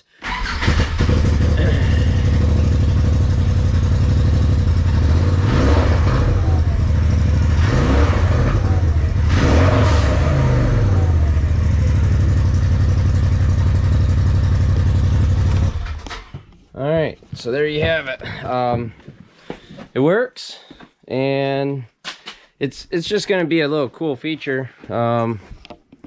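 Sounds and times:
engine idling and revving: 0:00.3 - 0:16.3.

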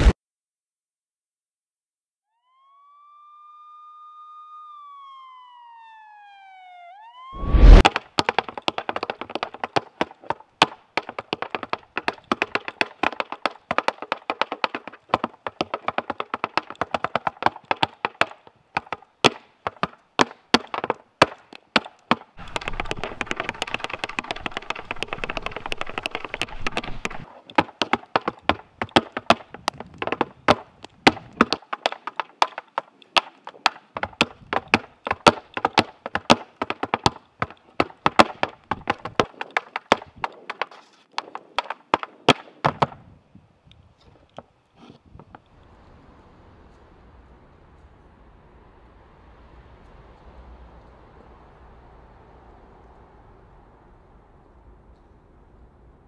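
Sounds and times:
gliding rising and falling tone: 0:02.4 - 0:07.8
loud thump: 0:07.4 - 0:07.9
tap shoes on wooden platform: 0:07.6 - 0:43.0.

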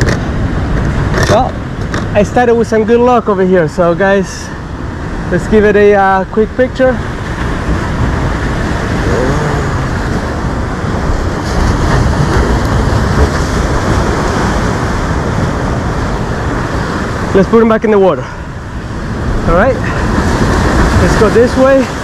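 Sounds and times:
ocean surf washing against concrete: 0:00.0 - 0:22.0
wind buffeting microphone: 0:06.4 - 0:17.5, 0:18.4 - 0:22.0.

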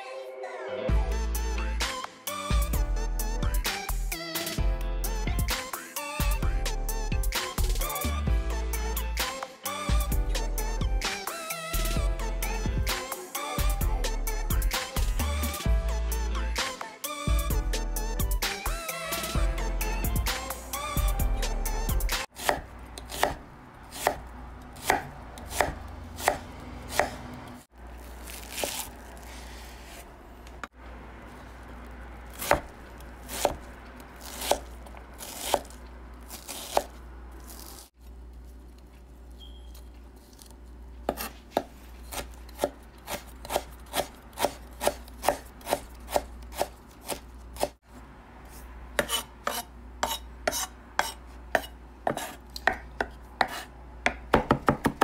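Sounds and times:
knife chopping on wooden board: 0:22.4 - 0:24.2, 0:24.8 - 0:27.2, 0:32.3 - 0:32.7, 0:33.3 - 0:35.8, 0:41.1 - 0:47.8, 0:49.0 - 0:55.0.

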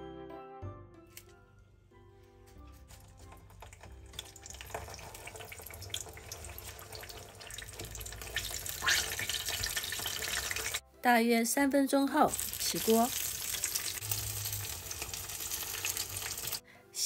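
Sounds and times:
fish sizzling in hot oil: 0:03.7 - 0:10.8, 0:12.2 - 0:16.6.

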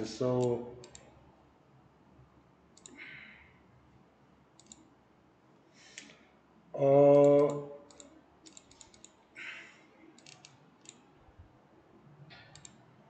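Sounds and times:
man's drawn-out vocal sound: 0:06.8 - 0:07.9
mouse and keyboard clicking: 0:07.2 - 0:09.2, 0:10.2 - 0:11.0, 0:12.3 - 0:12.8.

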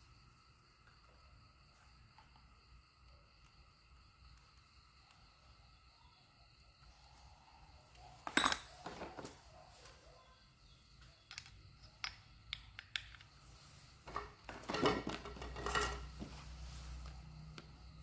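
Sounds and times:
screwdriver clicks and metal clatter: 0:08.3 - 0:08.7, 0:11.3 - 0:13.3.

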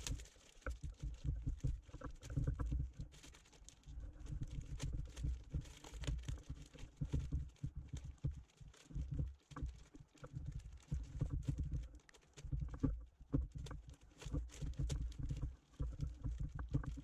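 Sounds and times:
plastic film crinkling: 0:00.0 - 0:17.0.

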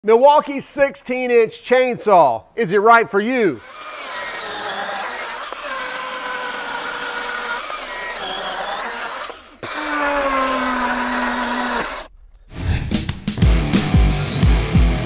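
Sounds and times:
chainsaw cutting through log: 0:03.6 - 0:12.1.

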